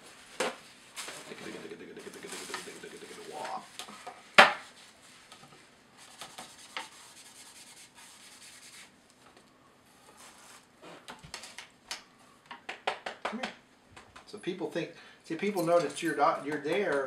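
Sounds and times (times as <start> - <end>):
scratchy rubbing on slate: 6.0 - 8.9.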